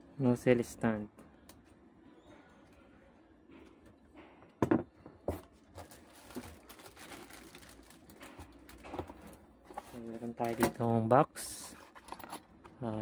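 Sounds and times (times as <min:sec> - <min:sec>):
plastic wrapping crinkling: 0:05.5 - 0:10.8.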